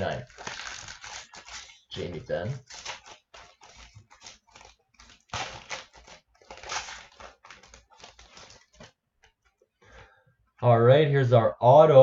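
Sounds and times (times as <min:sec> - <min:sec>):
foil wrapper crinkling and tearing: 0:00.0 - 0:09.0.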